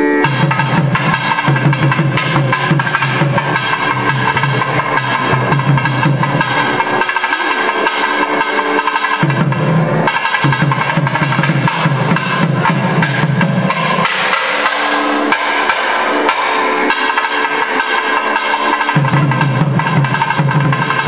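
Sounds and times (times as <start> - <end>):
steady ringing tones: 0.0 - 21.0
fast dense drumming: 0.2 - 21.0.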